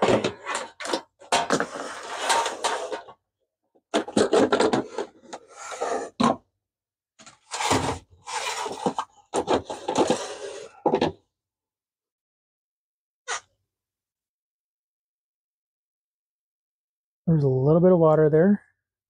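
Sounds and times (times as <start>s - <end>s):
plastic water tanks scraping and clattering: 0.0s - 3.2s, 3.9s - 6.4s, 7.2s - 11.2s.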